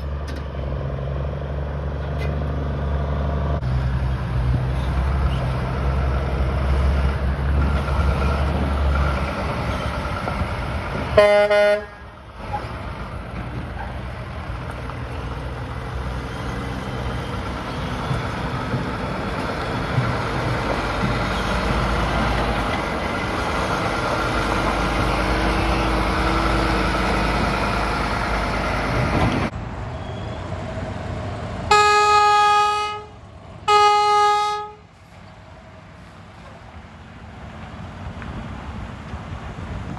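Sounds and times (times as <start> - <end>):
diesel trucks driving past: 0.0 - 39.9
truck air horn blasts: 11.2 - 12.0, 31.7 - 34.9.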